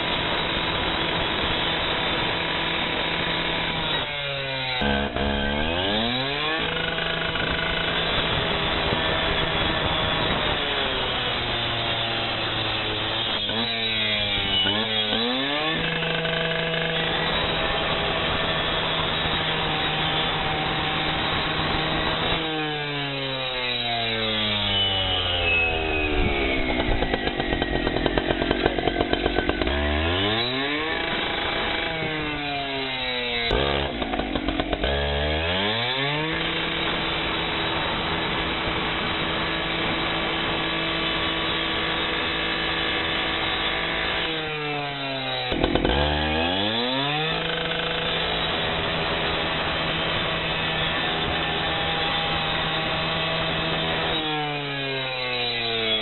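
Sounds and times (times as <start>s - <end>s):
cut-off saw engine revving: 0.0s - 56.0s
saw blade cutting glass: 3.8s - 8.2s, 13.0s - 17.6s.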